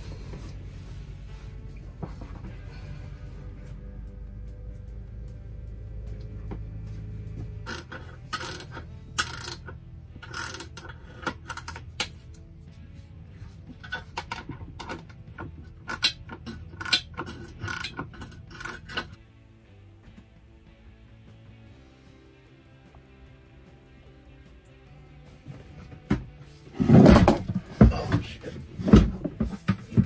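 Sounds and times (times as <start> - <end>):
background music: 0.0 - 30.0
socket ratchet clicking: 7.7 - 12.1, 15.8 - 19.2.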